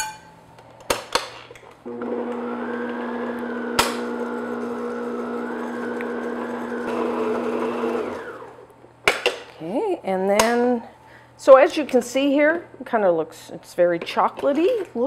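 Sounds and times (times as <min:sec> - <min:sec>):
stand mixer motor running: 0:01.9 - 0:08.6.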